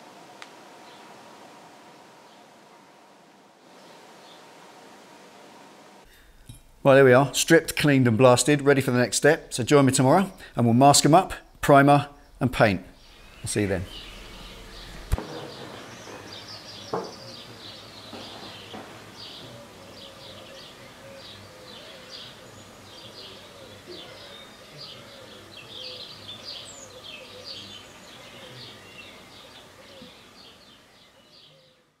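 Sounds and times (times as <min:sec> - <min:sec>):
small birds chirping: 0:09.2 - 0:32.0
knock: 0:15.2 - 0:17.2, 0:18.1 - 0:19.1.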